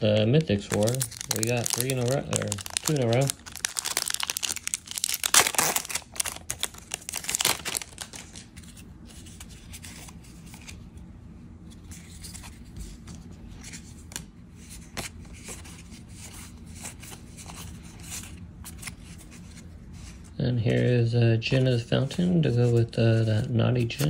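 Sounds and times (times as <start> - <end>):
trading cards rustling: 0.3 - 10.8
foil wrapper crinkling and tearing: 0.4 - 8.5.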